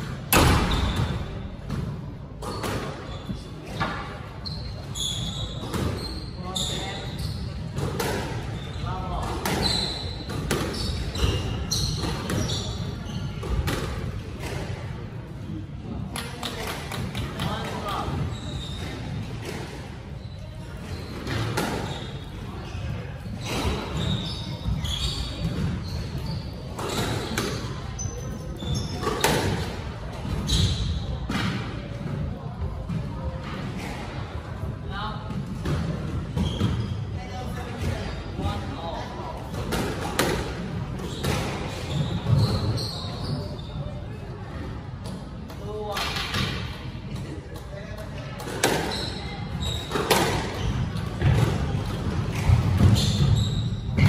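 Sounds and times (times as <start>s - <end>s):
squash ball hits: 0.0s - 3.1s, 7.7s - 8.5s, 49.8s - 54.0s
squash ball hitting racquets: 0.0s - 4.1s, 5.6s - 6.8s, 7.6s - 15.0s, 16.0s - 20.0s, 20.8s - 22.2s, 23.2s - 27.9s, 28.5s - 34.2s, 39.4s - 42.8s, 45.0s - 54.0s
shoes squeaking on wooden floor: 2.4s - 13.8s, 17.4s - 29.6s, 36.2s - 38.5s, 40.9s - 44.0s, 48.6s - 54.0s.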